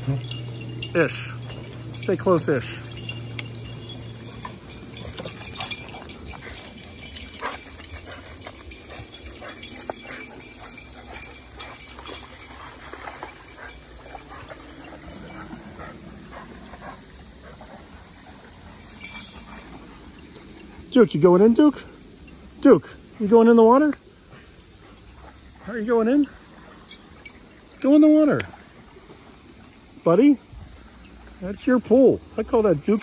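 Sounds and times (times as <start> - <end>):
dogs running on stones: 0.0 - 16.0
insects chirring: 0.0 - 33.0.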